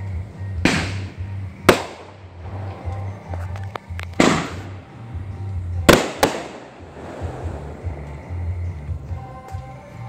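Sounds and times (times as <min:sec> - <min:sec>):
firework bangs: 0:00.6 - 0:02.9, 0:04.1 - 0:05.1, 0:05.8 - 0:08.1
firework crackles: 0:05.8 - 0:08.3.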